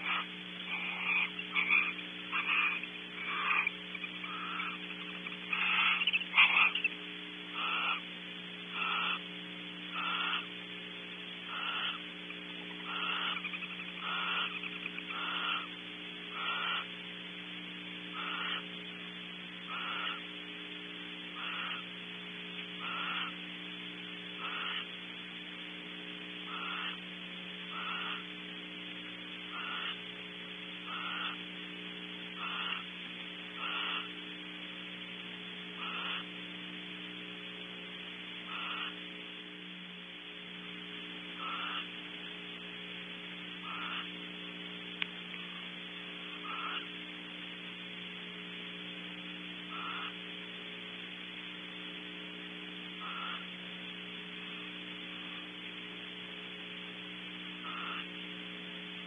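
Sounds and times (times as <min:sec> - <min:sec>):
owl hissing calls: 0:00.0 - 0:17.2, 0:18.0 - 0:19.0, 0:19.6 - 0:20.4, 0:21.2 - 0:22.0, 0:22.7 - 0:23.5, 0:24.2 - 0:25.0, 0:26.4 - 0:30.1, 0:30.7 - 0:31.5, 0:32.2 - 0:35.1, 0:35.7 - 0:36.5, 0:38.4 - 0:39.2, 0:41.3 - 0:42.4, 0:43.6 - 0:44.3, 0:45.4 - 0:47.1, 0:49.1 - 0:50.4, 0:52.8 - 0:55.6, 0:56.8 - 0:58.4
electrical hum: 0:00.0 - 0:59.0.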